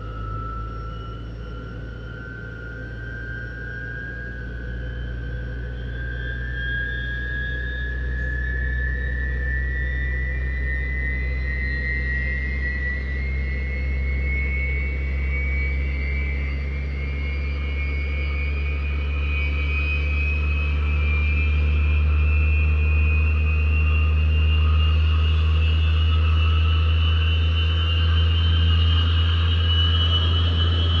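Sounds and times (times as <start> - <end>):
jet engine whine rising: 0.0 - 31.0
low hum: 0.0 - 31.0.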